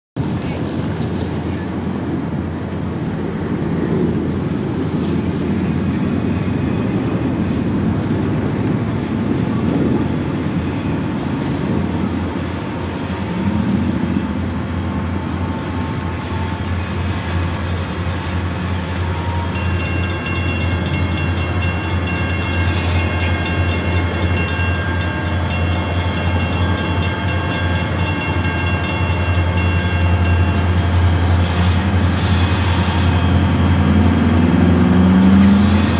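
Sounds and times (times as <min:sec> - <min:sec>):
diesel locomotives droning: 0:00.2 - 0:35.9
wheels squealing on track: 0:34.8 - 0:35.9.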